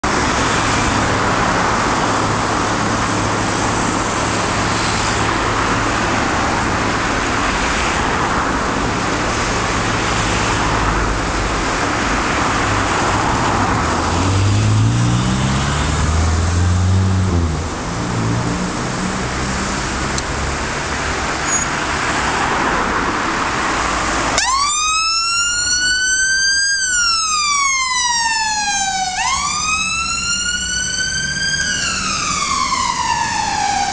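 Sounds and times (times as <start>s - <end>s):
road traffic passing: 0.0s - 33.9s
vehicle engine revving: 12.0s - 21.4s
siren wailing: 24.3s - 33.9s.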